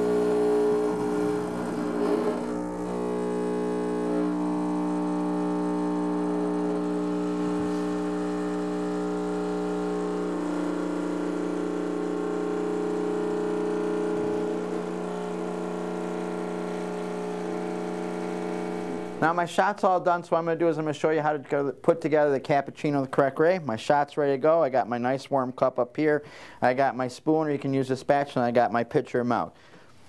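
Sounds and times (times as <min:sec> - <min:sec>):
espresso machine pump humming: 0:00.0 - 0:19.2.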